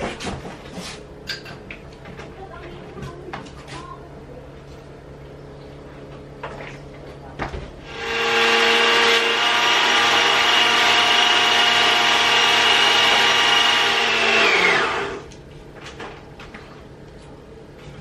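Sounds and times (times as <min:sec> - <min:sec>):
blender motor whining: 0:07.8 - 0:15.3.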